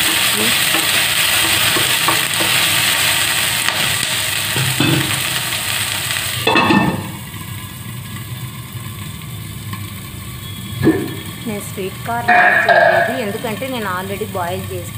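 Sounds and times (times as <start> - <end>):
vegetables sizzling in oil: 0.0 - 14.9
glass lid clattering on pan: 0.1 - 2.8, 4.6 - 5.3, 6.4 - 7.2
spatula scraping pan: 12.3 - 13.5.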